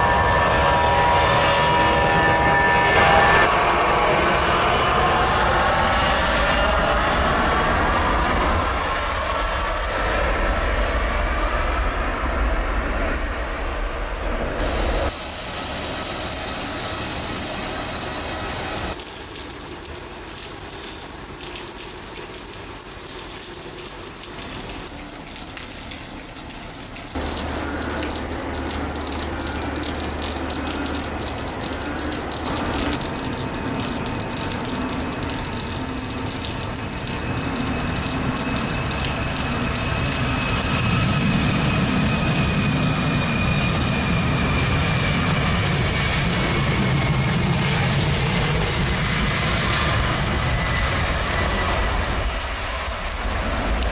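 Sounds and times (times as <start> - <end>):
faint high engine whine: 0.0 - 53.9
jet engines running: 0.0 - 53.9
heavy rain hissing: 14.6 - 34.2.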